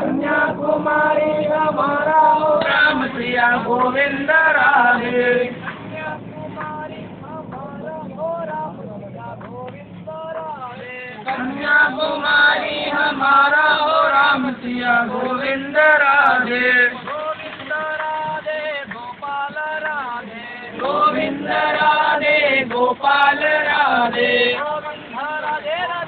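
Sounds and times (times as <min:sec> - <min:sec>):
voices chanting together: 0:00.0 - 0:07.1, 0:10.8 - 0:17.4, 0:20.2 - 0:25.8
vehicle noise: 0:00.0 - 0:26.0.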